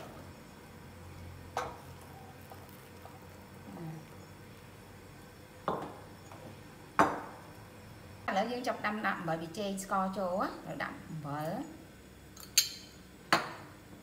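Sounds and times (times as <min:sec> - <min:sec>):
soup simmering: 0:00.0 - 0:08.2.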